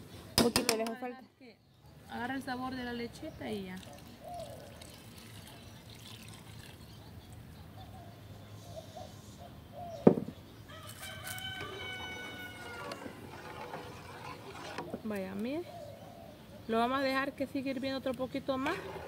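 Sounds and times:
rooster crowing: 10.7 - 13.3.

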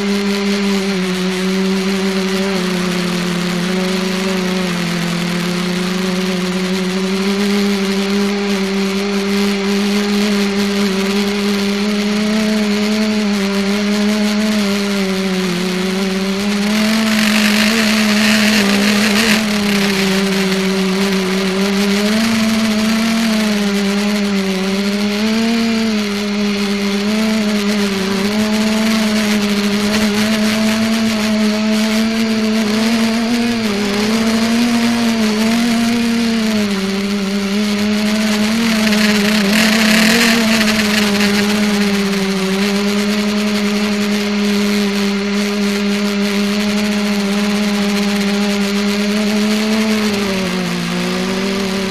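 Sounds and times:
drone propellers buzzing: 0.0 - 51.9.

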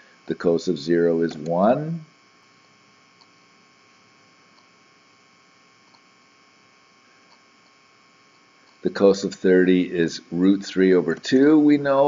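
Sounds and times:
faint electrical hum and hiss: 0.0 - 12.0
faint ticks: 3.1 - 3.4, 4.5 - 4.7, 5.8 - 6.1.

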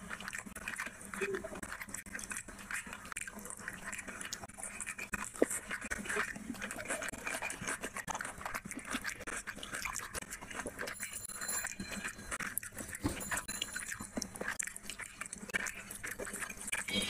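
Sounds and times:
rice and curry squished by hand: 0.0 - 11.0
chewing and mouth sounds: 0.0 - 17.0.

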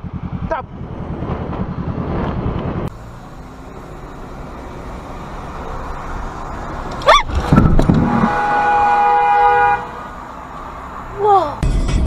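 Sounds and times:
motorcycle engine pulsing: 0.0 - 6.1
car engine and road hum: 0.0 - 12.0.

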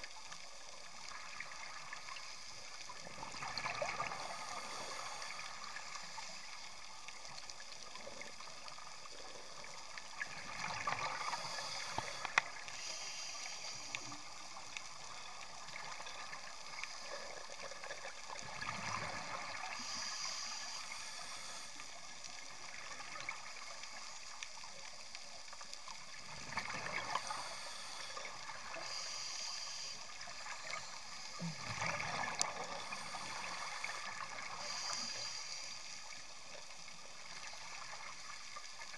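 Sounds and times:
regulator inhale hiss: 4.1 - 6.7, 10.8 - 18.0, 19.2 - 24.2, 26.8 - 36.7.

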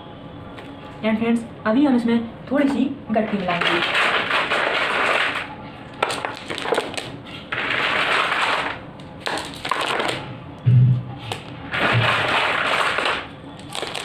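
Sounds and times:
stones clicking: 6.0 - 10.2, 12.2 - 14.0.

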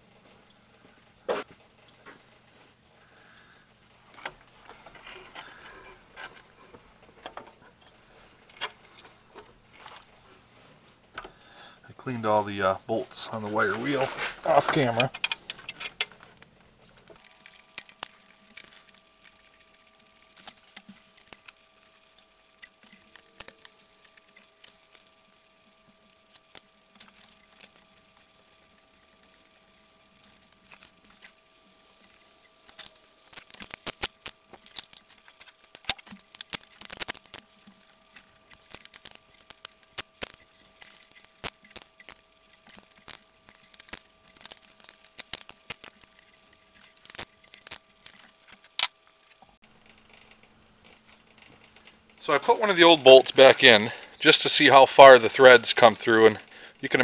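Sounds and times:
metal parts clicking and clinking: 13.9 - 25.2, 26.0 - 49.5.

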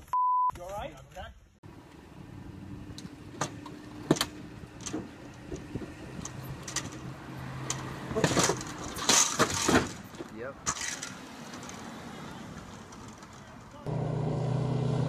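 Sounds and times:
car engine humming: 1.6 - 15.0
car passing by: 5.8 - 9.0.

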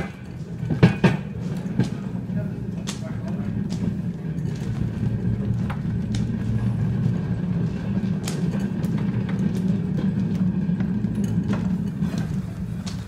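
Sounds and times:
trolley wheels rumbling on rails: 0.0 - 13.0
sharp clicks and knocks: 2.8 - 6.5, 7.7 - 13.0.

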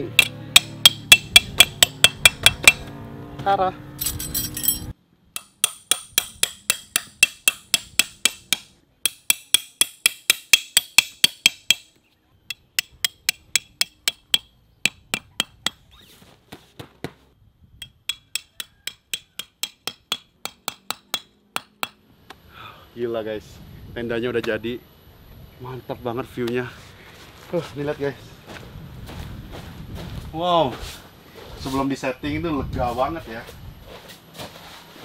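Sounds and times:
hammer striking steel tent stakes: 0.0 - 2.9, 4.0 - 15.9, 17.8 - 22.0.

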